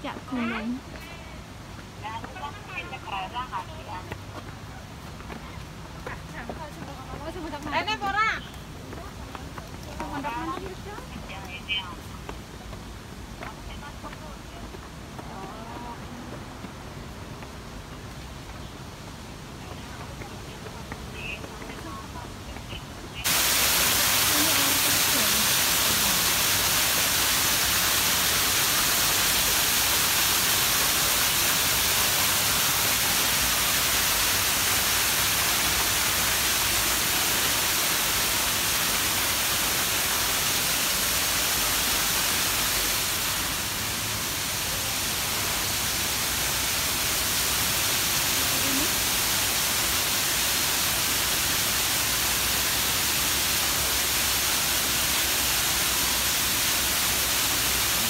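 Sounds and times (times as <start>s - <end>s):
waterfall rushing and splashing: 0.0s - 58.0s.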